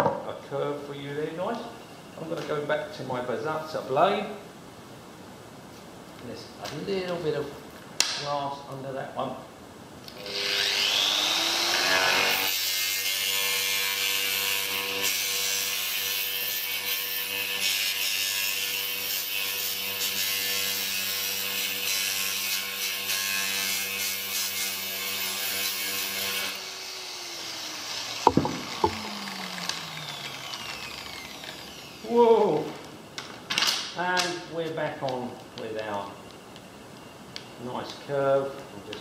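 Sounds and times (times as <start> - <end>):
angle grinder cutting glass tiles: 10.2 - 32.0
motor winding down whine: 27.5 - 32.1
sharp knocks: 28.3 - 29.2.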